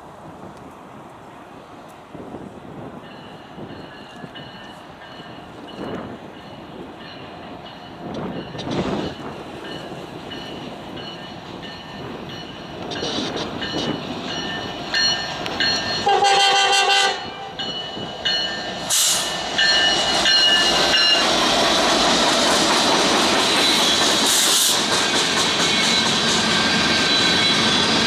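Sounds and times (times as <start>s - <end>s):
locomotive engine and wheels passing: 0.0s - 28.0s
locomotive air horn blasts: 16.0s - 17.6s.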